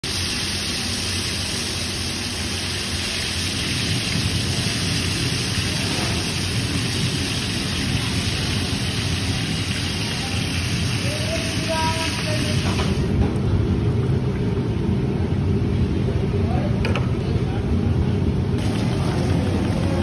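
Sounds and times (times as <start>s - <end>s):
batter sizzling in hot ghee: 0.0s - 13.2s, 18.6s - 20.0s.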